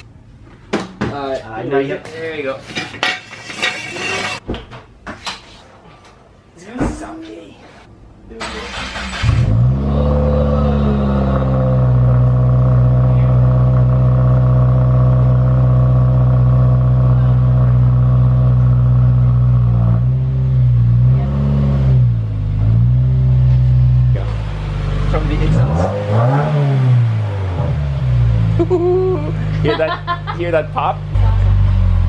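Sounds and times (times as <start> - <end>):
car engine starting and idling: 8.4 - 32.0
car engine revving: 8.5 - 29.6, 30.4 - 32.0.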